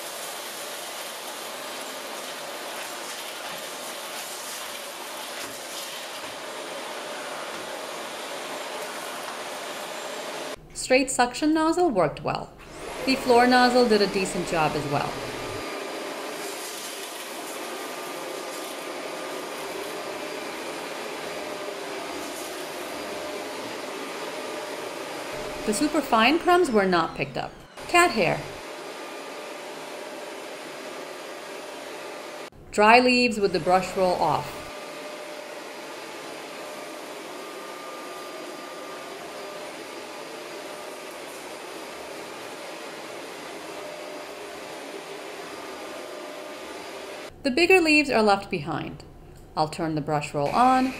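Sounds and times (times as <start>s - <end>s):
vacuum cleaner running: 0.0s - 10.7s, 12.6s - 47.4s, 50.4s - 50.9s.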